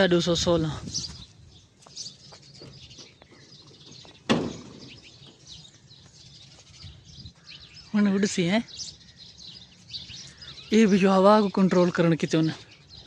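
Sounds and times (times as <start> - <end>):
birds chirping: 0.0 - 13.0
sharp knock: 4.3 - 4.9.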